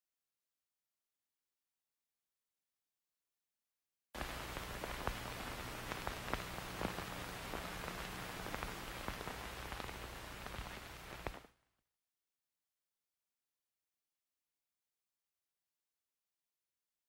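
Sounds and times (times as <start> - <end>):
crackling clicks: 4.2 - 11.5
static hiss: 4.2 - 11.5.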